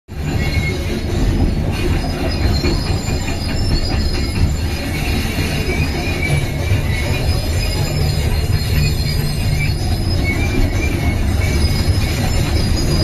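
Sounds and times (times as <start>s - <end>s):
high squealing tones: 0.1s - 13.0s.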